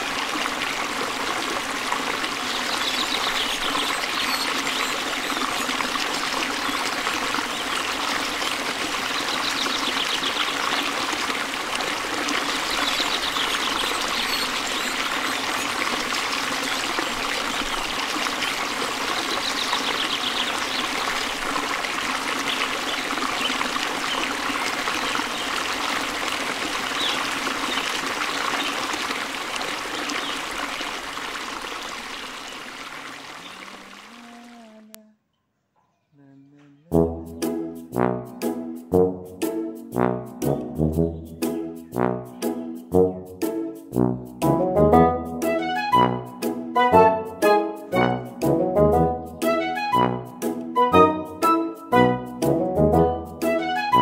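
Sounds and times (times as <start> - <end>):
flowing water rushing: 0.0 - 34.9.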